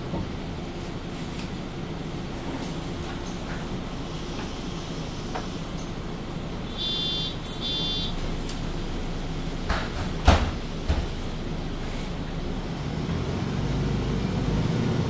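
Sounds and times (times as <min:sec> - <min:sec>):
bus doors shutting with knocks: 0:00.0 - 0:00.8, 0:06.9 - 0:11.5
bus diesel engine idling: 0:00.0 - 0:14.5
short high beeps: 0:06.8 - 0:08.2.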